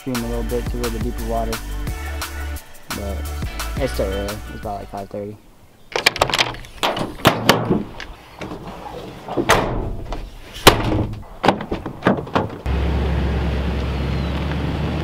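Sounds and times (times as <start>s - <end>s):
latches clicking and clunking: 5.9s - 12.7s
truck door slams: 5.9s - 12.7s.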